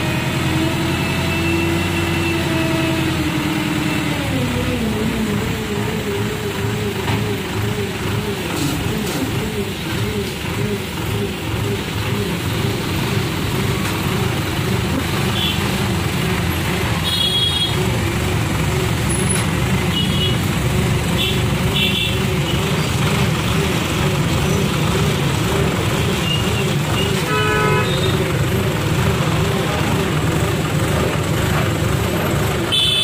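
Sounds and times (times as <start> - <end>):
diesel engine running: 0.0 - 33.0
horn toots: 16.9 - 18.0, 26.1 - 28.3, 32.7 - 33.0.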